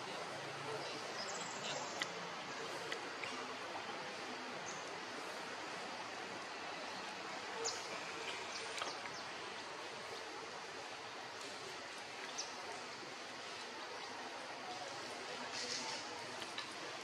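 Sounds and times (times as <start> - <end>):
distant running water hiss: 0.0 - 17.0.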